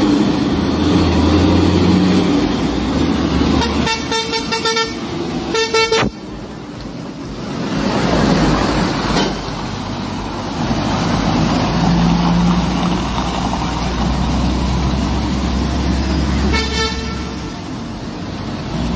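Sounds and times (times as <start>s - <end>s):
diesel truck engine rumbling: 0.0s - 18.9s
vehicle horn toot: 3.6s - 6.2s, 16.5s - 17.5s.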